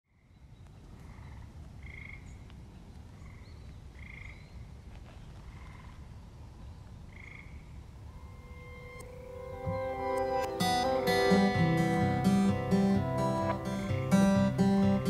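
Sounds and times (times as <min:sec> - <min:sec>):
faint bird chirp: 0:00.1 - 0:09.0
frogs trilling: 0:04.0 - 0:04.5, 0:07.1 - 0:07.6.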